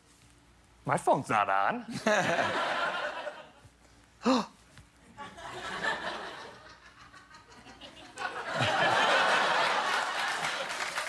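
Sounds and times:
audience laughing: 2.0 - 3.6, 5.2 - 11.0
audience clapping: 8.2 - 11.0.

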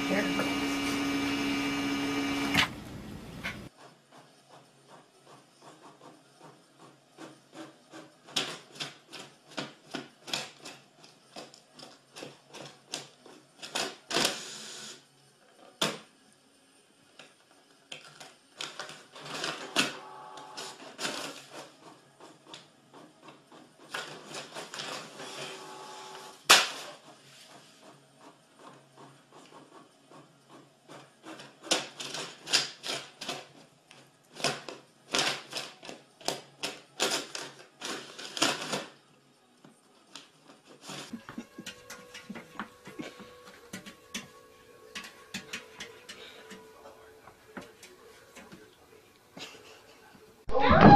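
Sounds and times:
printer mechanical whirring: 0.0 - 14.1, 18.6 - 37.5.

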